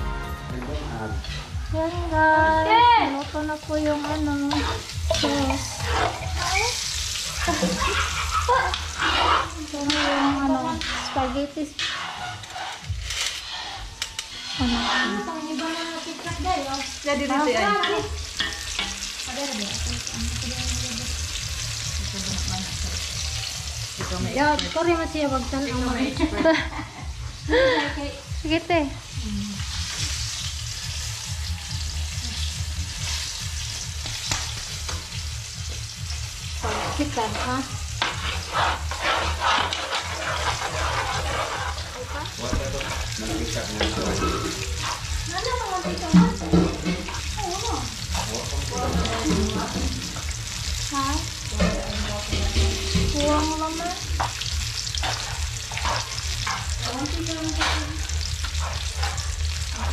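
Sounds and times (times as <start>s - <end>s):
sauce sizzling in pan: 1.1s - 59.9s
spatula scraping a metal wok: 3.2s - 19.6s, 36.2s - 59.9s.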